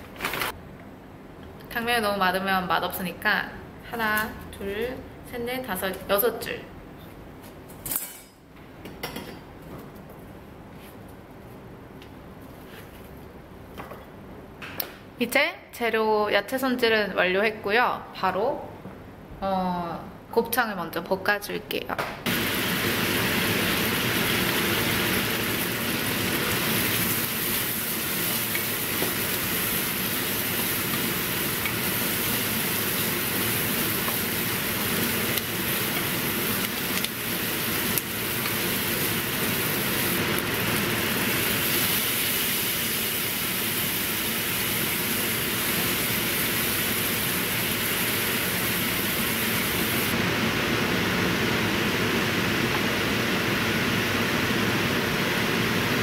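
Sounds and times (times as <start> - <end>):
meat sizzling in frying pan: 22.3 - 50.1.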